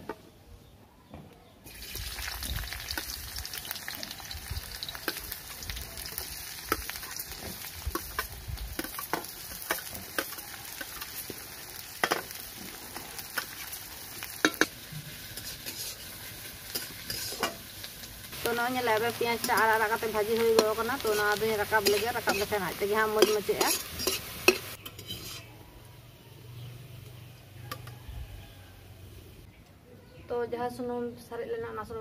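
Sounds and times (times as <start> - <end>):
onions sizzling in hot oil: 1.7 - 25.5
spatula scraping metal pan: 15.3 - 16.1, 16.7 - 17.6, 20.6 - 25.5.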